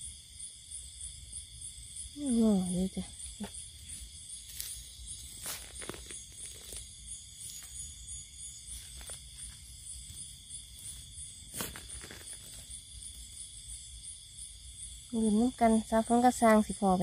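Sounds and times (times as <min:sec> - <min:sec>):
crickets trilling: 0:00.0 - 0:17.0
footsteps crunching in undergrowth: 0:04.4 - 0:07.9, 0:08.7 - 0:12.6.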